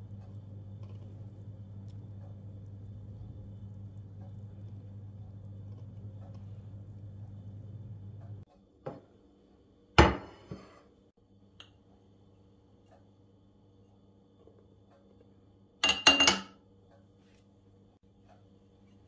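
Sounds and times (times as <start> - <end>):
steady low hum: 0.0 - 19.0
kitchenware clanking: 10.0 - 10.8, 15.8 - 16.6.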